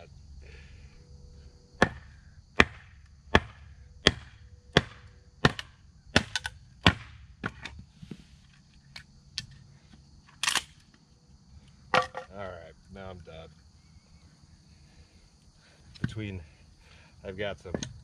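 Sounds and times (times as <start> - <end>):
hatchet chopping wood: 1.8 - 7.6.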